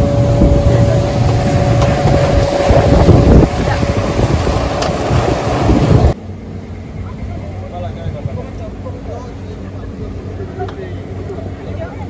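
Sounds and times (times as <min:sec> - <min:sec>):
wind buffeting microphone: 0:00.0 - 0:06.2
motorboat engine running: 0:00.0 - 0:12.0.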